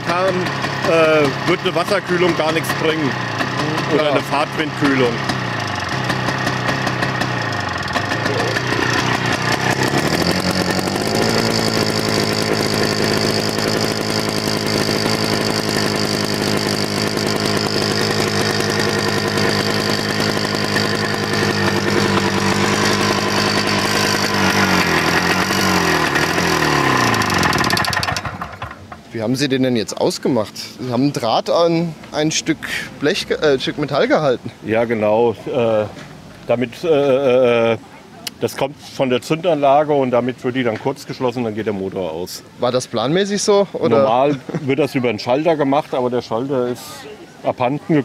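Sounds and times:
two-stroke tractor engine running: 0:00.0 - 0:29.2.

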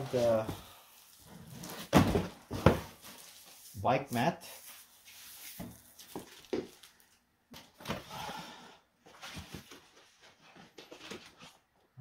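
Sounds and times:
boxes knocking together: 0:01.7 - 0:03.0.

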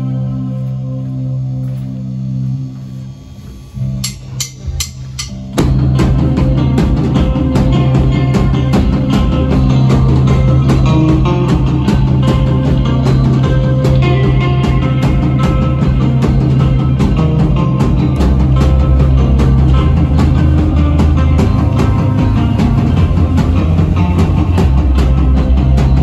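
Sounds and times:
electric guitar chord ringing: 0:00.0 - 0:26.0
rock band playing: 0:00.0 - 0:26.0.

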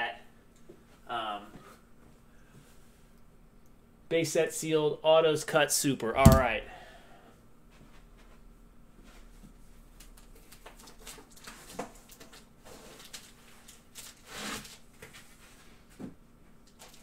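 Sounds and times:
rustling scrape: 0:12.6 - 0:15.9.

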